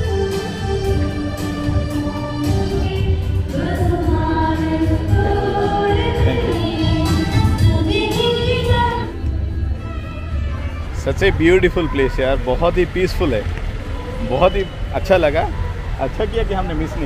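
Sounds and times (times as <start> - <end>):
choir singing a hymn: 0.9 - 9.2.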